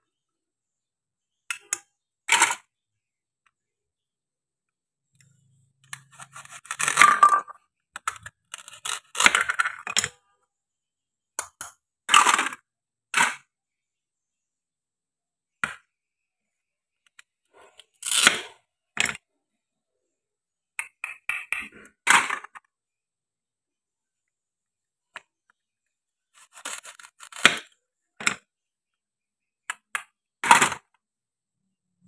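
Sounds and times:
hook-and-loop tearing open: 0:08.4 - 0:09.6, 0:17.8 - 0:18.6, 0:26.4 - 0:27.7.

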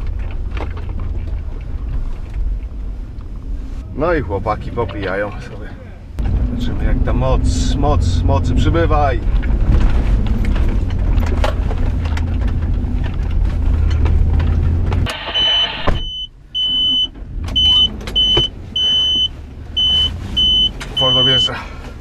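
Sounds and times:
car engine driving: 0:00.0 - 0:22.0
high-pitched beeping: 0:15.3 - 0:21.5.

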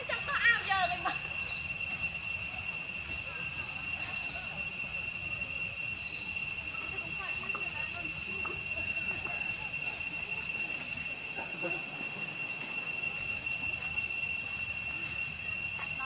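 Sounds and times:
insect chorus drone: 0:00.0 - 0:16.0
faint murmuring voices: 0:02.4 - 0:12.9.

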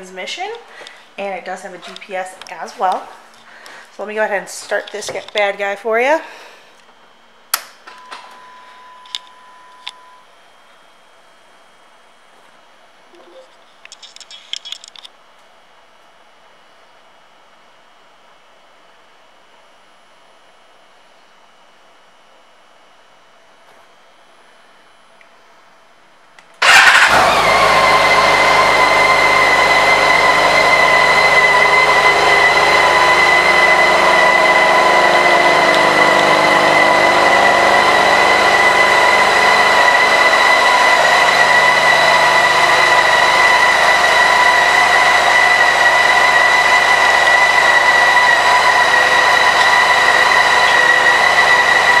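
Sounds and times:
motorcycle engine starting and idling: 0:26.6 - 0:52.0.

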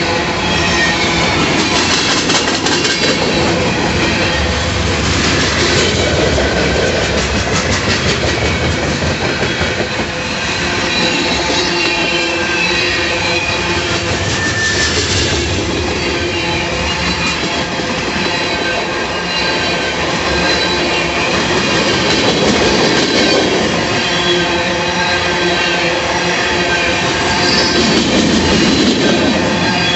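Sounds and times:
freight train wheels rumbling: 0:00.0 - 0:29.9
clickety-clack over rail joints: 0:01.2 - 0:04.2, 0:04.9 - 0:12.2, 0:19.7 - 0:24.0, 0:27.2 - 0:29.9
high wheel squeals: 0:09.4 - 0:21.3, 0:24.0 - 0:28.1.

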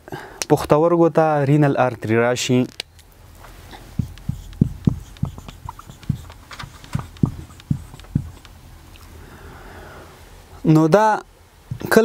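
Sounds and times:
marker pen writing on whiteboard: 0:03.8 - 0:08.6, 0:11.7 - 0:12.0.

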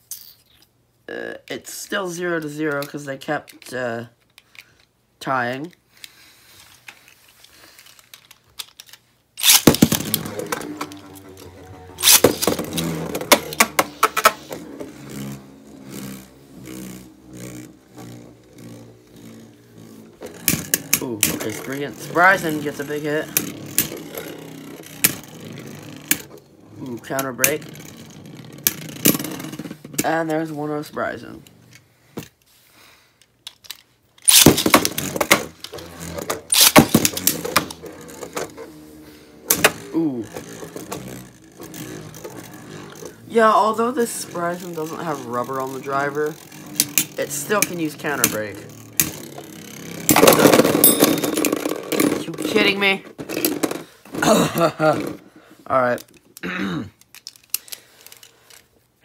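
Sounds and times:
spinning tops clashing: 0:09.4 - 0:26.4, 0:34.2 - 0:38.5
spinning top whirring: 0:09.4 - 0:31.9, 0:34.2 - 0:53.8.

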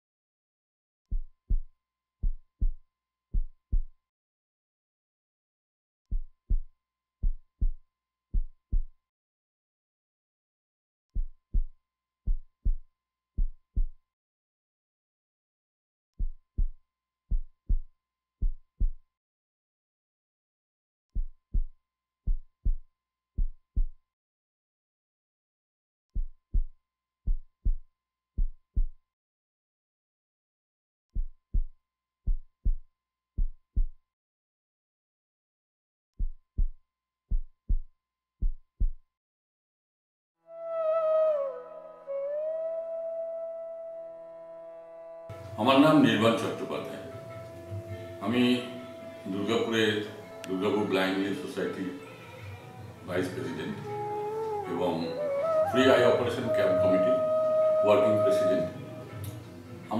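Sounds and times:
heartbeat thumps: 0:01.1 - 0:03.9, 0:06.1 - 0:08.9, 0:11.2 - 0:11.7, 0:12.3 - 0:12.8, 0:13.4 - 0:14.0, 0:16.2 - 0:19.0, 0:21.2 - 0:21.7, 0:22.3 - 0:22.8, 0:23.4 - 0:23.9, 0:26.2 - 0:26.7, 0:27.3 - 0:27.8, 0:28.4 - 0:28.9, 0:31.2 - 0:31.7, 0:32.3 - 0:32.8, 0:36.2 - 0:39.0.

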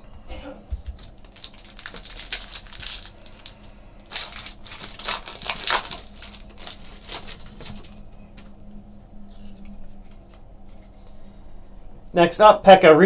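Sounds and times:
foil wrapper tearing and crinkling: 0:00.8 - 0:08.4.

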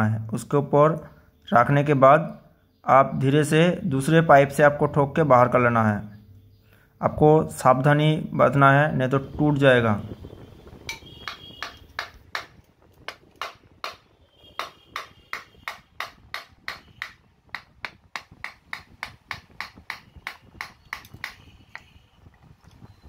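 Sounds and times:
metal pipe tapping metal: 0:10.8 - 0:21.9.

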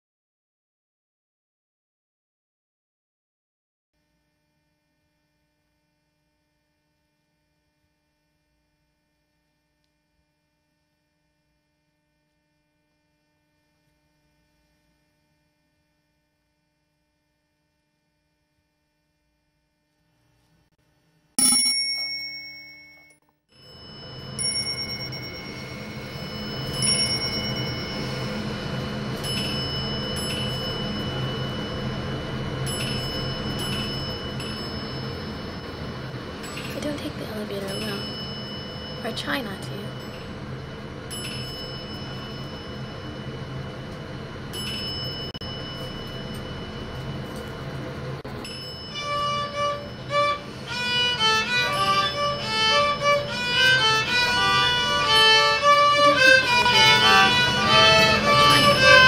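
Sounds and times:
faint hum: 0:04.0 - 0:59.0
bell-like chime: 0:21.4 - 0:40.4, 0:41.1 - 0:43.6, 0:44.5 - 0:47.7, 0:48.4 - 0:50.7, 0:51.3 - 0:59.0
sustained ringing musical tones: 0:21.4 - 0:59.0.

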